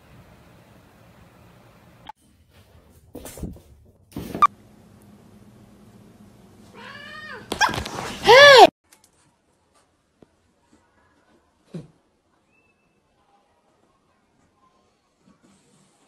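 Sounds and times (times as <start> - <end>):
cat meowing: 6.8 - 7.5.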